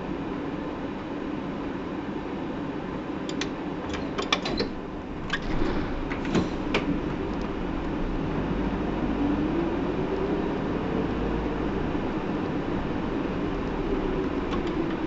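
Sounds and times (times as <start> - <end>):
bus engine and road noise: 0.0 - 15.0
sharp clicks and clatters: 3.3 - 7.6, 13.6 - 15.0.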